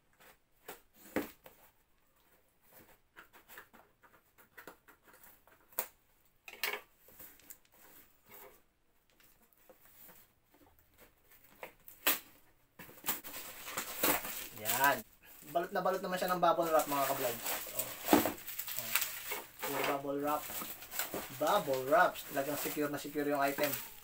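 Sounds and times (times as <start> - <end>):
scraping on packing tape and cardboard: 13.0 - 15.0, 16.7 - 24.0.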